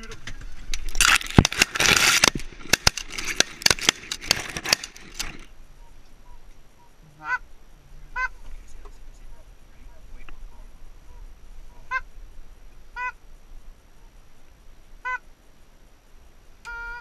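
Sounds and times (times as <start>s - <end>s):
geese honking: 5.8s - 12.1s, 12.9s - 13.2s, 15.0s - 15.3s, 16.7s - 17.0s.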